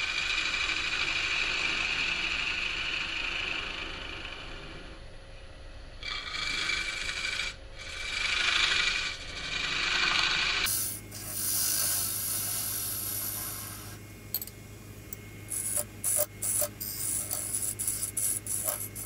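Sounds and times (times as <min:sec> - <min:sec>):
lathe humming: 0:10.8 - 0:19.0
lathe tool scraping wood: 0:15.5 - 0:19.0.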